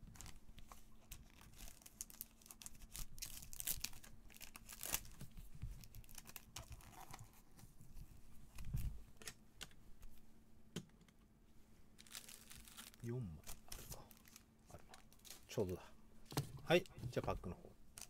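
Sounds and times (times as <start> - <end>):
plastic sleeve crinkling: 0.1 - 0.4, 1.0 - 7.2, 11.9 - 15.7.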